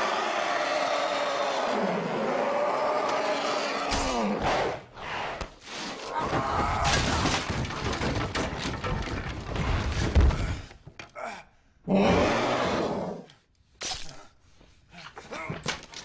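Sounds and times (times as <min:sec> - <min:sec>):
crashing and breaking: 0:06.2 - 0:10.6.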